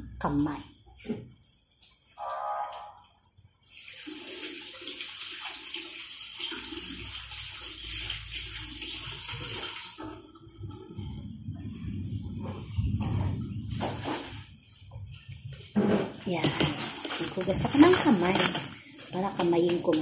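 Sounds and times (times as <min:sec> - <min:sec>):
hands washing under water: 0:00.9 - 0:20.0
tap water running into sink: 0:02.6 - 0:10.8.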